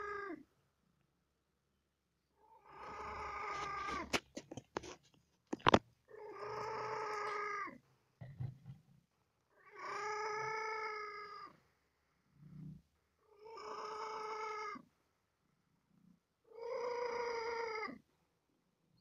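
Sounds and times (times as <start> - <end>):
cat mewing: 0.0 - 0.4, 2.6 - 4.2, 6.1 - 7.8, 9.6 - 11.5, 13.4 - 14.8, 16.5 - 18.0.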